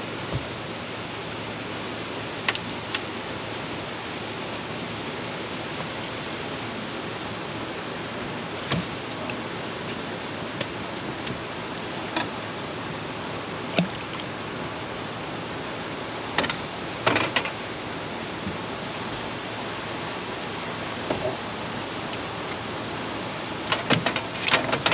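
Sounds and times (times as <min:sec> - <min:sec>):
river water rushing through dam: 0:00.0 - 0:24.9
sharp clicks and knocks: 0:23.7 - 0:24.9.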